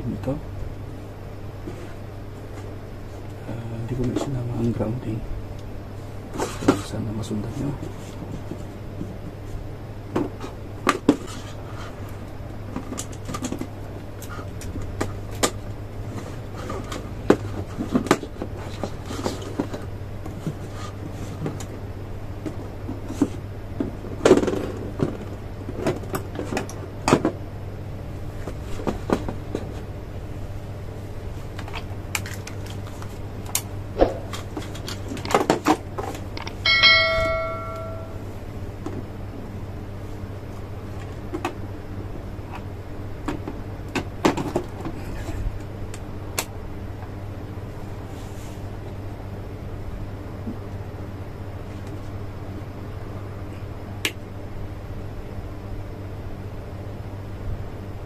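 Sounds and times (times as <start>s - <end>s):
steady low hum: 0.0s - 58.0s
short bell-like chime: 36.6s - 38.2s.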